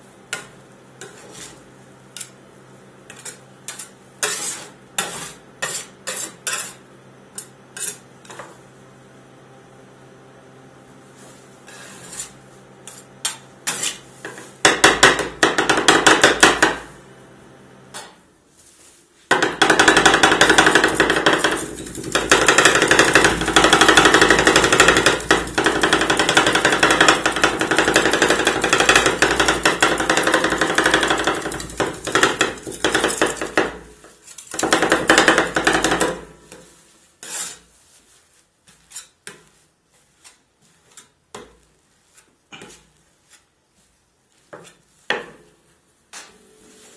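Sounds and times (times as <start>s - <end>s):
metal scrapers tapping steel plate: 19.3s - 36.2s.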